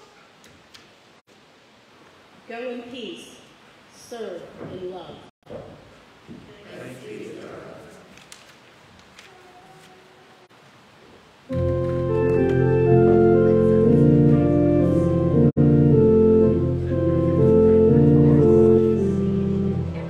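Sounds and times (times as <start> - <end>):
organ playing sustained chords: 11.5 - 20.0.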